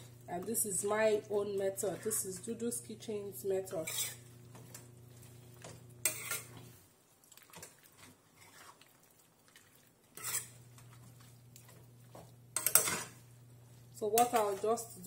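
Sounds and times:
spoon scraping in frying pan: 0:03.6 - 0:06.8, 0:10.0 - 0:13.4.

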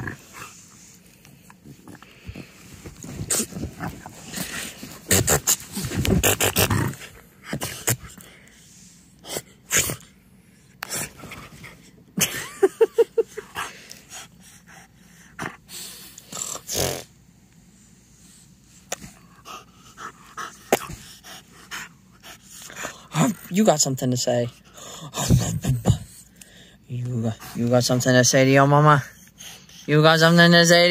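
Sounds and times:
dog snorting and breathing: 0:00.0 - 0:10.2, 0:10.8 - 0:12.0, 0:13.3 - 0:17.2, 0:18.2 - 0:23.6.

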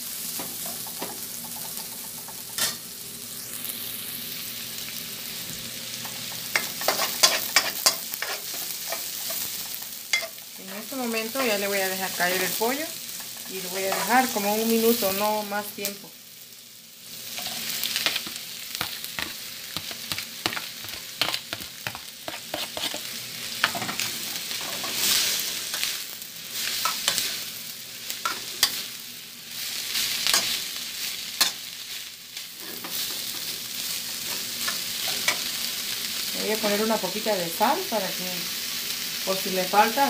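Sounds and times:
chicken sizzling in hot oil: 0:00.0 - 0:40.0
spoon scraping and knocking pan: 0:06.1 - 0:10.4, 0:17.4 - 0:25.1.

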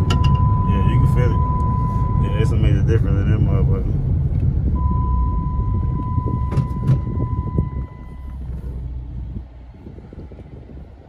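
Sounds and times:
steady high tone: 0:00.0 - 0:02.7.

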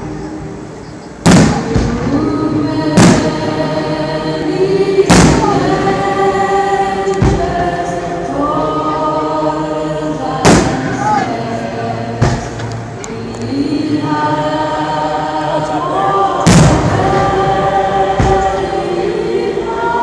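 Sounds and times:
choir singing long held notes: 0:00.0 - 0:20.0
fireworks bursting with sharp bangs: 0:01.2 - 0:03.8, 0:05.0 - 0:06.0, 0:07.1 - 0:07.8, 0:10.3 - 0:11.3, 0:12.2 - 0:12.8, 0:16.3 - 0:18.7.

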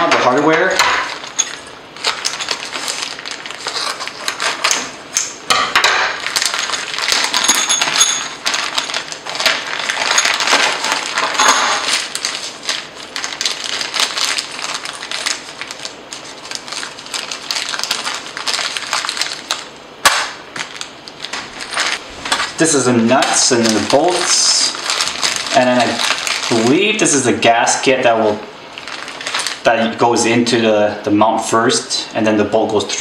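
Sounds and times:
paper and plastic crinkling: 0:00.5 - 0:04.9, 0:06.1 - 0:19.8, 0:20.5 - 0:27.3, 0:28.7 - 0:30.4
metal nuts and bolts clinking: 0:06.4 - 0:09.0.

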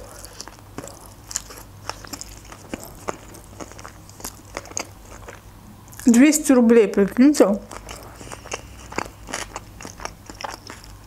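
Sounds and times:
person chewing food: 0:00.0 - 0:06.1, 0:07.6 - 0:11.0.

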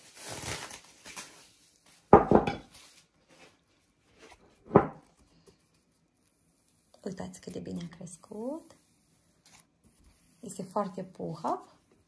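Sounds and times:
bowl knocking on worktop: 0:02.1 - 0:02.7.

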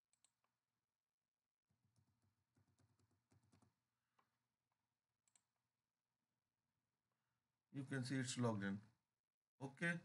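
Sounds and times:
faint keyboard typing: 0:01.8 - 0:04.4, 0:05.2 - 0:05.6.

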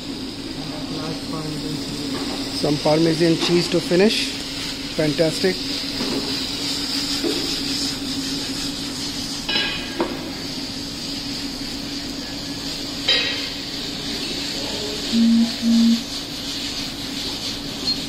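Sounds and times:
cooktop hum: 0:00.0 - 0:18.0
pasta sizzling in a pan: 0:00.0 - 0:18.0
short low tones: 0:15.2 - 0:16.0.

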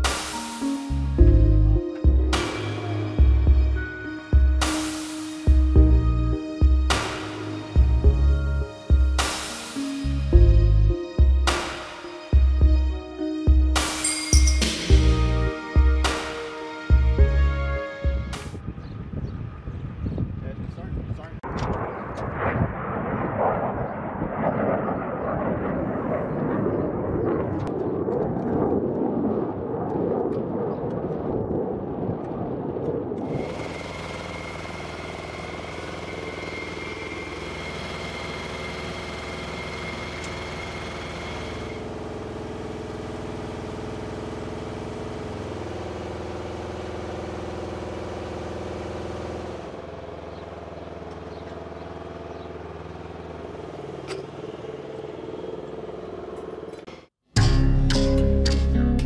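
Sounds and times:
machine whine: 0:00.0 - 0:20.8, 0:26.7 - 0:57.1
vehicle engines running: 0:00.9 - 0:04.8, 0:33.3 - 0:59.0.

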